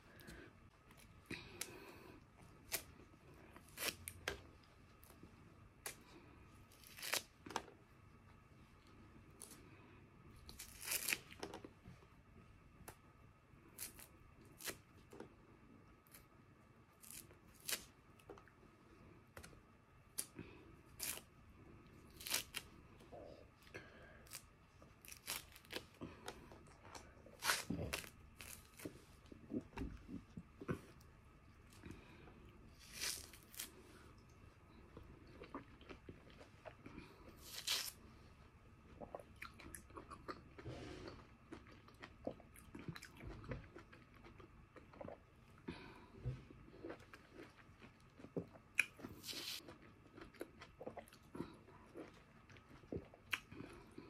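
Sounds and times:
orange peel ripping: 3.6s - 4.4s, 6.7s - 7.6s, 10.5s - 11.6s, 13.8s - 14.8s, 17.0s - 18.0s, 21.0s - 21.3s, 22.1s - 22.7s, 24.3s - 25.9s, 27.3s - 28.9s, 32.8s - 33.8s, 37.4s - 38.0s.

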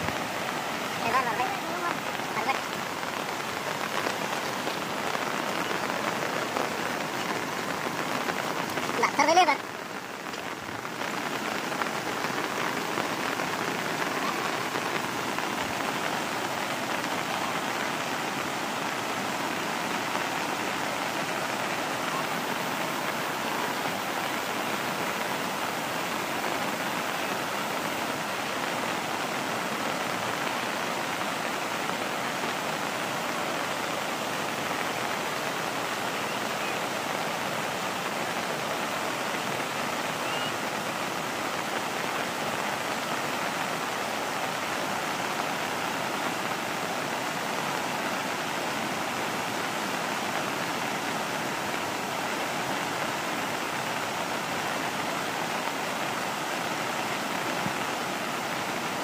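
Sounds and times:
turbulent river water rushing: 0.0s - 59.0s.

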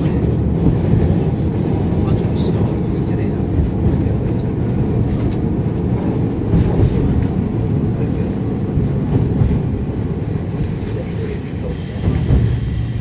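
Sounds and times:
diesel railcar engines: 0.0s - 13.0s.

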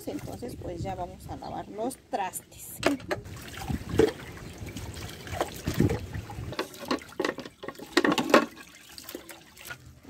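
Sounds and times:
water sloshing and splashing: 0.0s - 1.0s, 2.8s - 10.0s.

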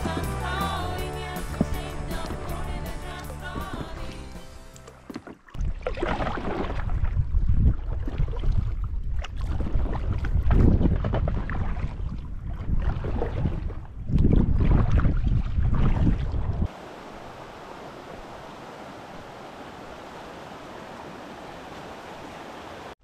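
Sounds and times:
wind buffeting the microphone: 6.4s - 16.7s.

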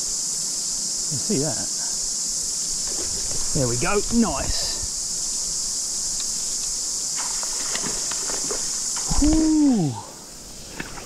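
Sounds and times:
cicadas buzzing: 0.0s - 11.0s
man exclaiming: 9.1s - 10.1s.

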